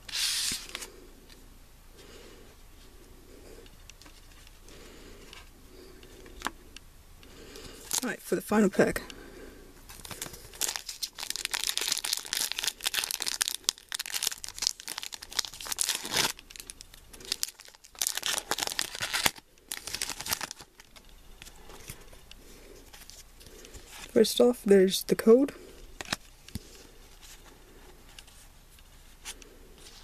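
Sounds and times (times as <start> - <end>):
foil wrapper crinkling and tearing: 7.8 - 8.2, 9.9 - 22.0.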